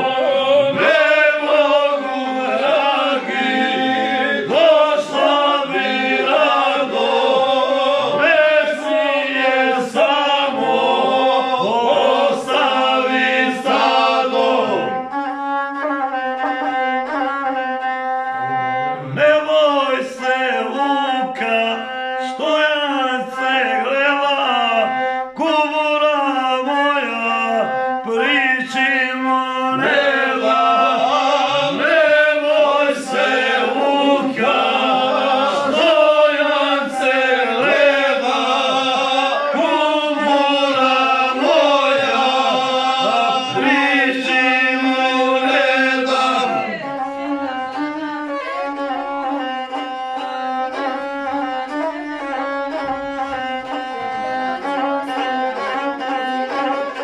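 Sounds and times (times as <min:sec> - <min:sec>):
instrument holding long notes: 0:00.0 - 0:19.2, 0:29.7 - 0:57.0
man singing folk song: 0:19.1 - 0:46.7.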